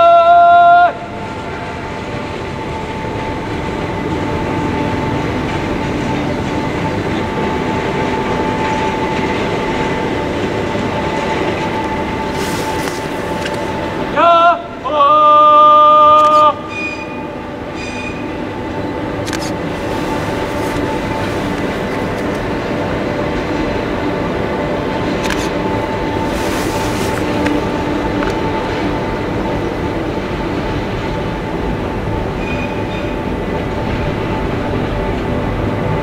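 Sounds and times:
rack train running with gear noise: 0.0 - 36.0
man shouting: 14.2 - 15.8.

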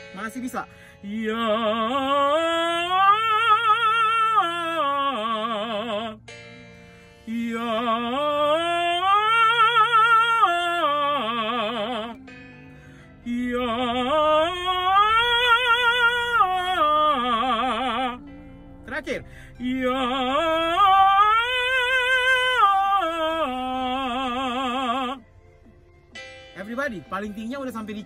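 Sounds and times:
man singing vocal exercise: 1.0 - 6.2, 7.3 - 12.2, 13.2 - 18.2, 18.9 - 25.2.

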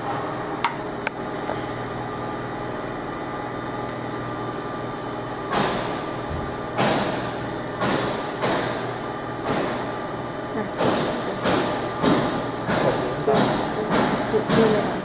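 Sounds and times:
machine humming: 0.0 - 15.0
short bursts of hiss: 4.3 - 15.0.

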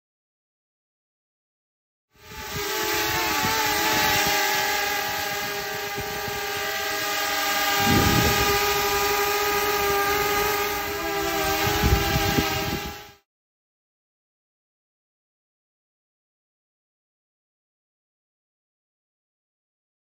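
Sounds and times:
drone propellers whining: 2.2 - 13.2
wind rumble on microphone: 2.2 - 13.2.

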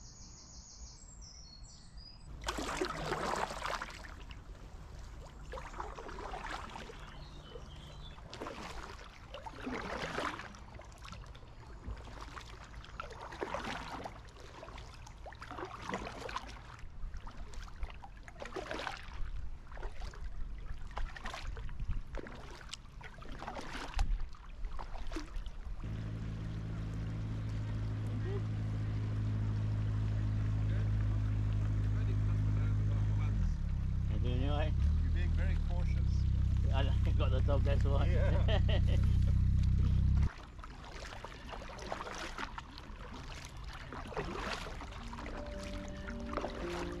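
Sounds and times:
paddle swishing through water: 2.3 - 32.4, 36.3 - 47.0
water dripping: 43.2 - 47.0.

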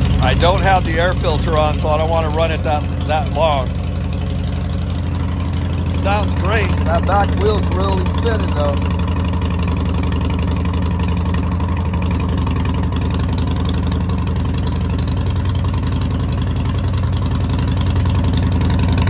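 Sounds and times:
motorcycle engine idling: 0.0 - 19.0.

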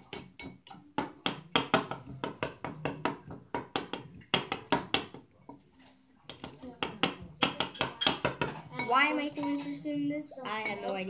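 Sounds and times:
knife tapping glass bowl: 6.3 - 9.6.

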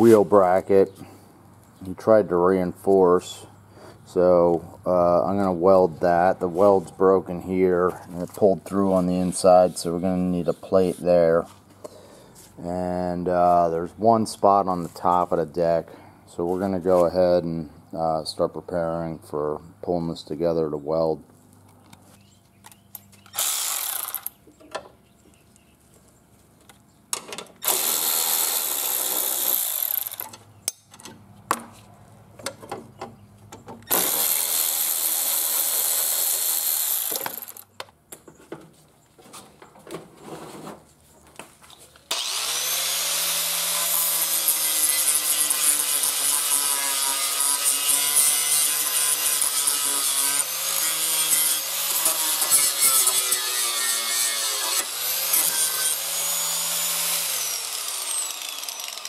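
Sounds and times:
grinder disc grinding steel: 23.2 - 24.4, 27.6 - 30.5, 33.9 - 37.7, 42.1 - 59.0
angle grinder spinning: 23.3 - 24.3, 27.6 - 30.3, 33.9 - 37.6, 42.1 - 59.0
electric ratchet running: 23.3 - 24.4, 27.6 - 30.3, 33.9 - 37.6, 42.1 - 59.0.

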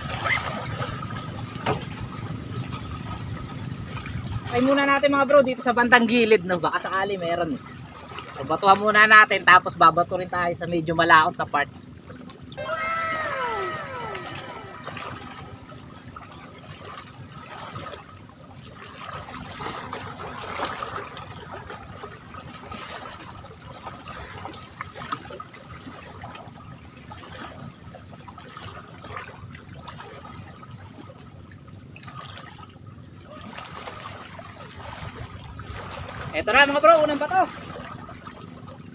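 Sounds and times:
lake water lapping: 7.6 - 9.0, 12.8 - 15.7, 16.7 - 26.4, 27.1 - 31.1, 32.0 - 38.9.

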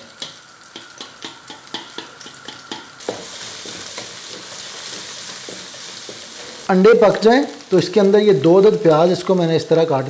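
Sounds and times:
eggs frying in oil: 0.0 - 10.0
even sizzle: 0.0 - 10.0
metal spoon scraping and tapping pan: 0.1 - 6.4.

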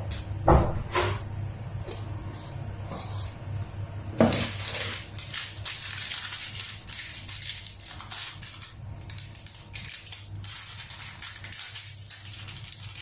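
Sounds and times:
plastic sachet crinkling and tearing: 4.3 - 13.0.

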